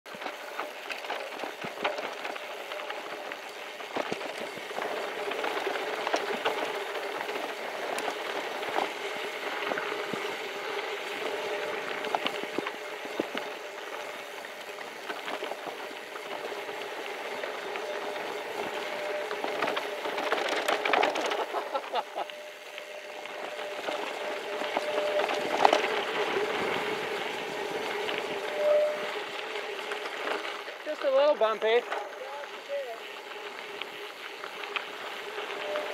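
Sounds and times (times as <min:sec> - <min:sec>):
bike clicks and rattles: 0:00.1 - 0:35.9
bike tyres rolling on gravel: 0:00.1 - 0:35.9.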